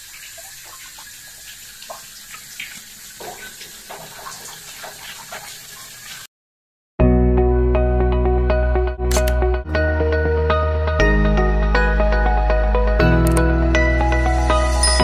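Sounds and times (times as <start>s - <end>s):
water running from a hose: 0.0s - 6.3s
water splashes and drips: 0.0s - 6.3s.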